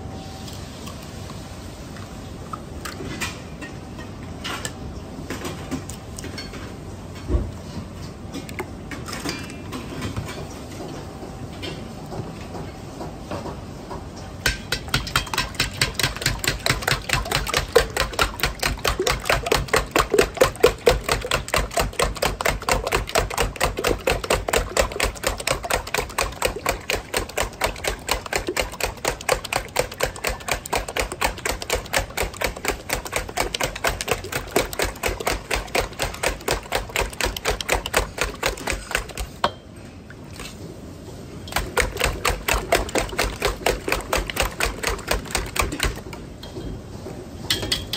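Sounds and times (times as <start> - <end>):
whisk beating eggs in metal bowl: 14.4 - 39.4, 41.5 - 46.2.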